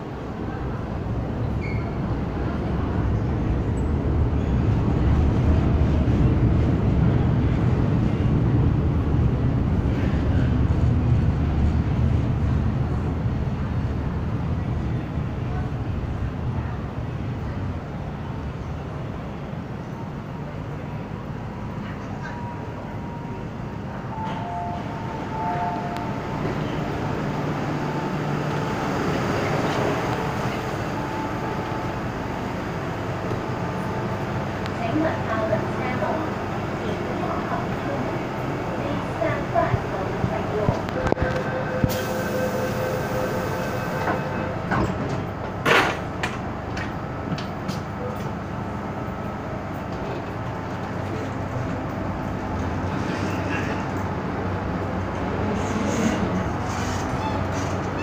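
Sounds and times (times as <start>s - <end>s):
train humming: 0.0s - 58.0s
door warning tone: 24.2s - 26.8s.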